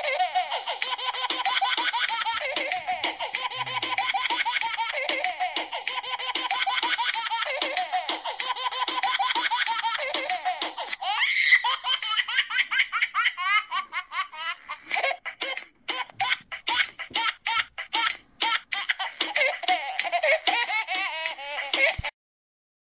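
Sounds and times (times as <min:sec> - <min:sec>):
music track: 0:00.0 - 0:11.0
baby giggling: 0:00.0 - 0:22.1.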